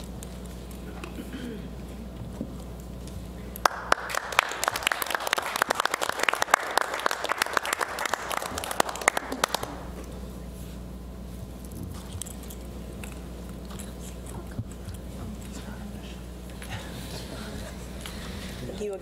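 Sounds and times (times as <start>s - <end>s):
people clapping: 3.6s - 10.0s.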